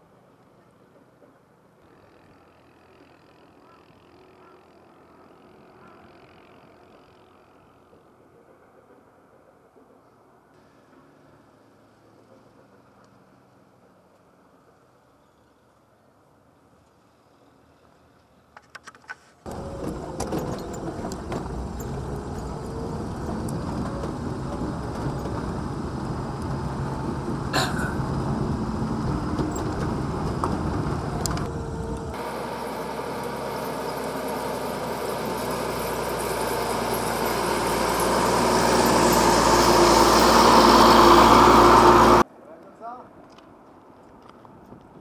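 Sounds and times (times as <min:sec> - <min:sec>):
vehicle on dirt road: 0:00.0 - 0:45.0
truck passing: 0:19.5 - 0:42.3.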